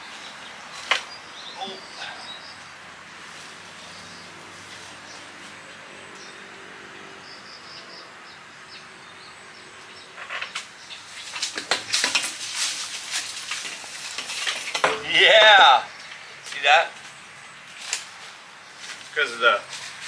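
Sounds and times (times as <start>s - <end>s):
metal pipe clanking and scraping: 13.6s - 15.5s.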